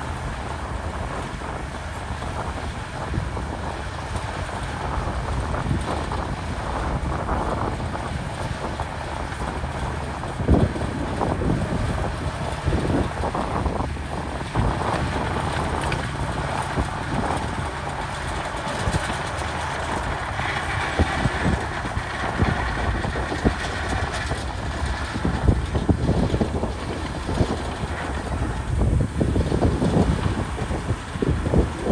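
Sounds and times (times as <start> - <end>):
bulldozer diesel engine under load: 0.0 - 31.9
steel tracks clanking: 10.9 - 31.9.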